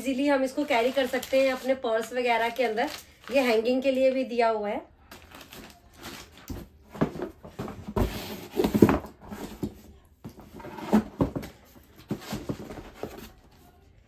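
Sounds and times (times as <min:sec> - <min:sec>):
rustling over cardboard: 0:05.3 - 0:13.8.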